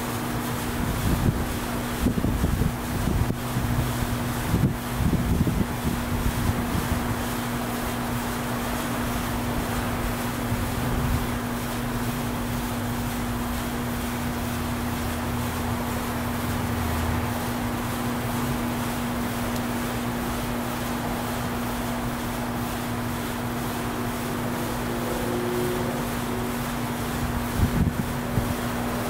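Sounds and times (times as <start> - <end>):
wind rumbling on microphone: 0.8 - 7.3, 9.3 - 11.6, 27.2 - 29.0
honey bees humming: 18.5 - 27.5.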